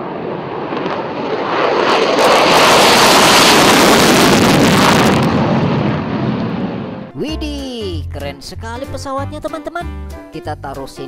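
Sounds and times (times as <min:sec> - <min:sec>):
jet roaring on takeoff: 0:00.0 - 0:07.1.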